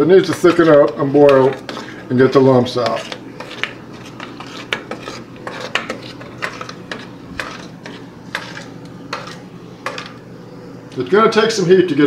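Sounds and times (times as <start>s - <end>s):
utensil scraping a saucepan: 0.0s - 10.3s.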